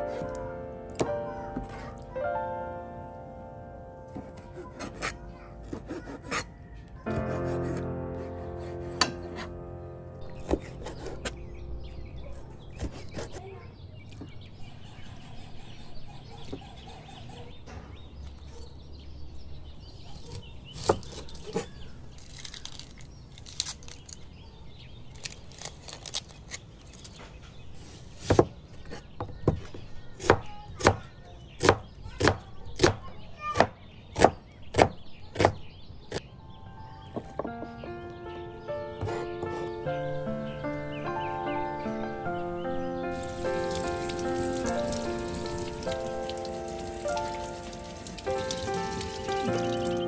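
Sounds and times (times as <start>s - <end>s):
blade chopping food: 4.1s - 6.5s, 7.1s - 9.5s, 31.6s - 35.6s.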